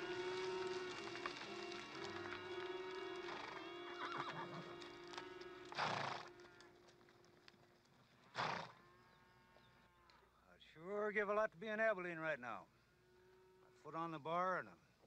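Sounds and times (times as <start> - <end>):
orchestral music sustained notes: 0.0 - 5.8
horse sounds: 0.0 - 10.3.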